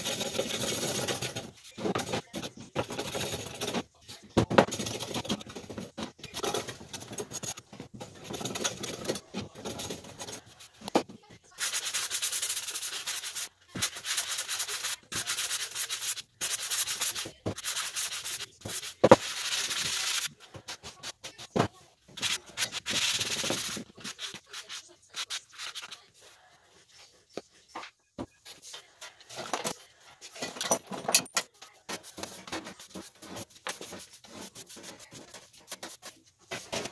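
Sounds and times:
sanding block scraping wood: 11.6s - 20.3s.

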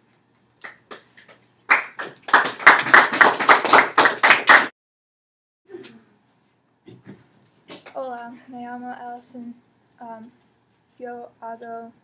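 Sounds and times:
hands clapping: 0.6s - 4.8s.

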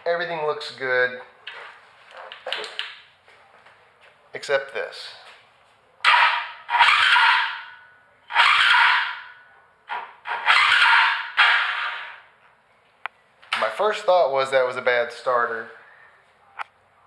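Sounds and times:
electric starter cranking engine: 6.1s - 7.6s, 8.3s - 9.2s, 10.2s - 12.3s.

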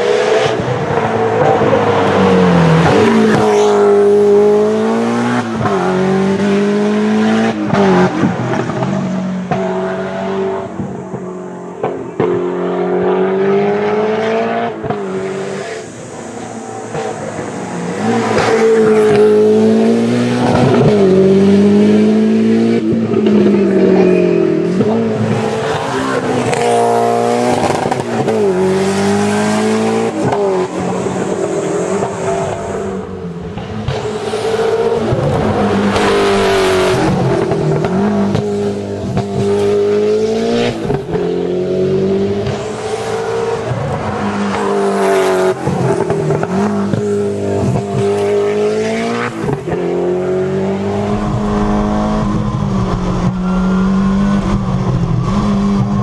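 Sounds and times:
rally car engine at full throttle: 0.0s - 56.0s.

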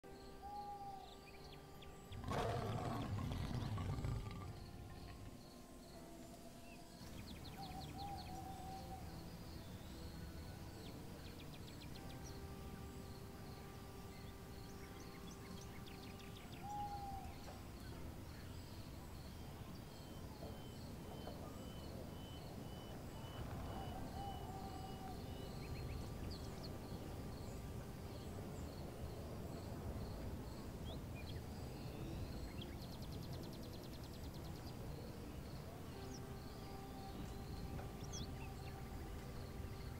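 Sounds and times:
birds chirping and calling: 2.1s - 5.4s, 7.0s - 9.7s.

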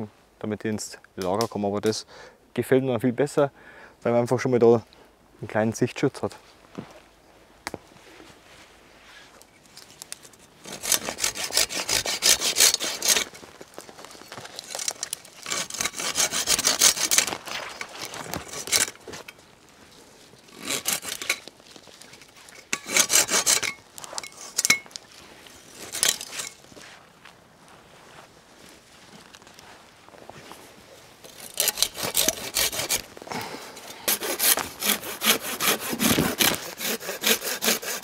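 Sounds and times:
hand saw cutting branches: 10.6s - 13.4s, 14.3s - 19.4s, 20.4s - 24.9s, 25.6s - 26.6s, 31.2s - 38.0s.

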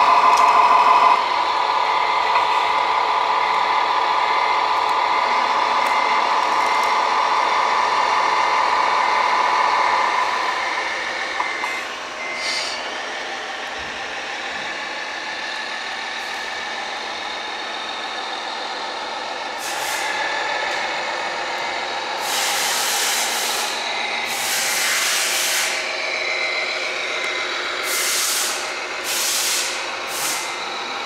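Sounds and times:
air-brake hisses: 12.4s - 12.8s, 19.6s - 20.2s, 22.2s - 25.9s, 27.8s - 30.6s.

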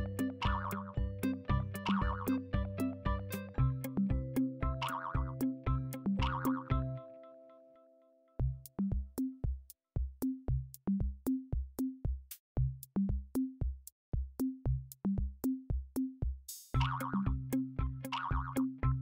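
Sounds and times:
electronic drum machine beat: 0.0s - 7.0s, 8.4s - 19.0s
short bass notes: 0.0s - 7.0s.

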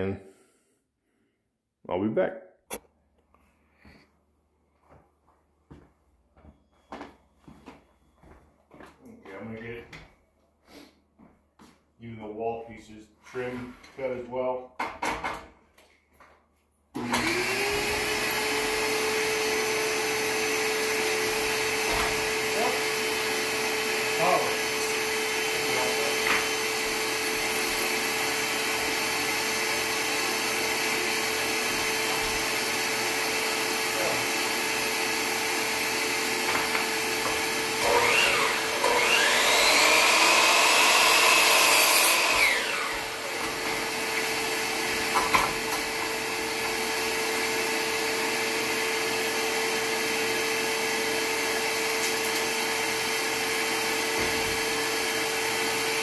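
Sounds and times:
miter saw cutting board: 17.0s - 49.1s
shop vacuum running: 17.0s - 56.0s.

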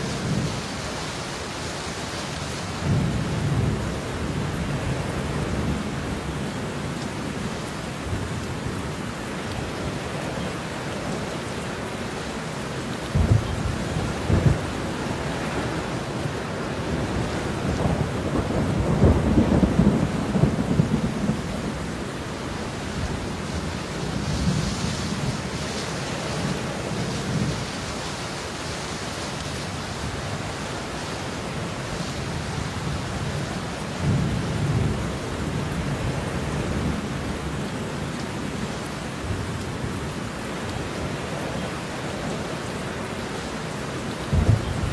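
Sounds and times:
heavy rain: 0.0s - 44.9s
thunder cracks and rumbles: 13.1s - 21.9s, 44.3s - 44.9s.

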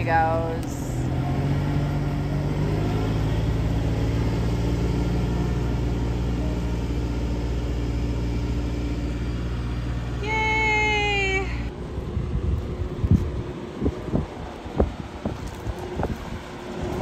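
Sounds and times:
tractor engine under load: 0.0s - 10.2s.

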